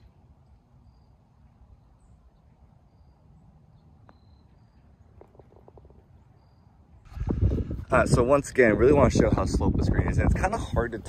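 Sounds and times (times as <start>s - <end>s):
high bird chirps: 0.8s - 6.8s
putter striking golf ball: 5.2s - 6.1s
wind on microphone: 7.0s - 11.0s.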